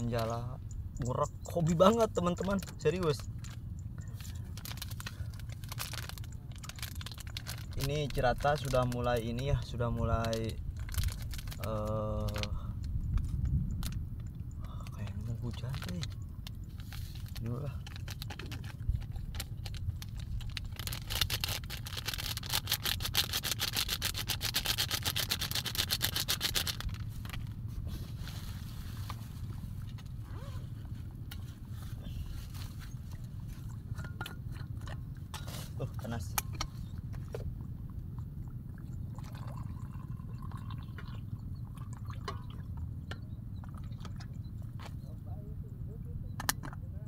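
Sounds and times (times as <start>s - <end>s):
coffee pouring into a plastic cup: 38.4s - 42.9s.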